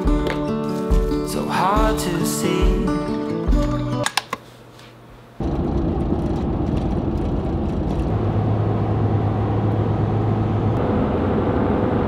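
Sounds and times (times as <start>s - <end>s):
low engine hum: 5.4s - 12.0s
road and tyre noise: 5.4s - 12.0s.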